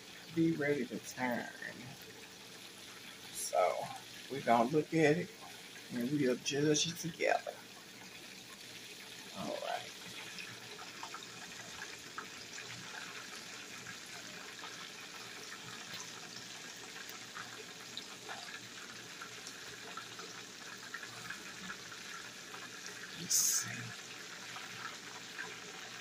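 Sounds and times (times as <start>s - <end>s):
deep-frying sizzle with crackles: 0.0s - 26.0s.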